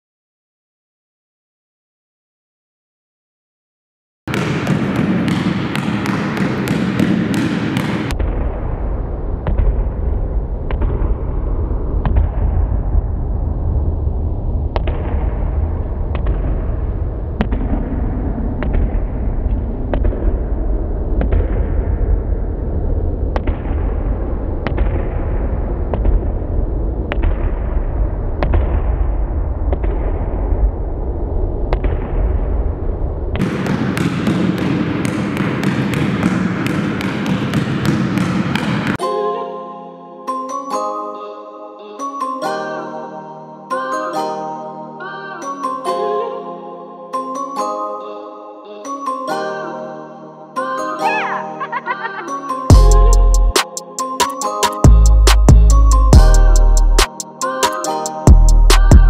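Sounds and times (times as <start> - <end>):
basketball bouncing on hall floor: 4.3 - 8.4, 33.4 - 39.0
heavy low rumble: 8.2 - 33.4.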